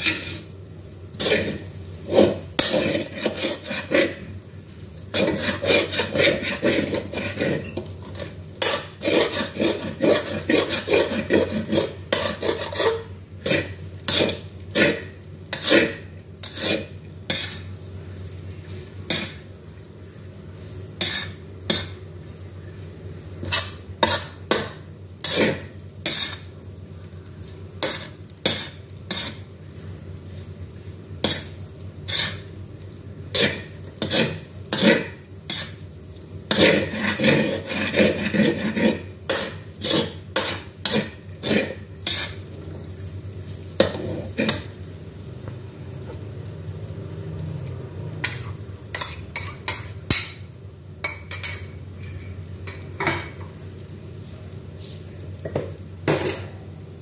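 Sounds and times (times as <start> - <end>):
metal spatula scraping a wok: 0.0 - 0.5, 1.2 - 4.3, 5.1 - 17.8, 18.8 - 19.5, 21.0 - 22.0, 23.4 - 26.6, 27.8 - 29.5, 31.2 - 32.6, 33.3 - 35.9, 36.5 - 42.5, 43.8 - 44.8, 48.2 - 50.4.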